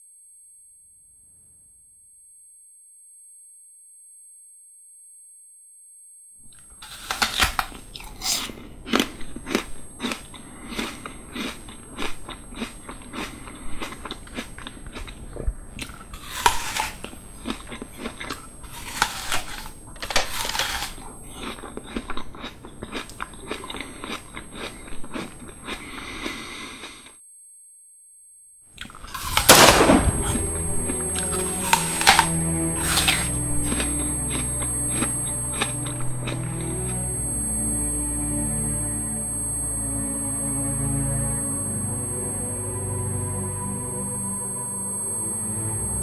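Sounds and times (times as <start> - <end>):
irregular clicks and crackles: 6.5 - 25.0
faint high steady tones: 29.4 - 46.0.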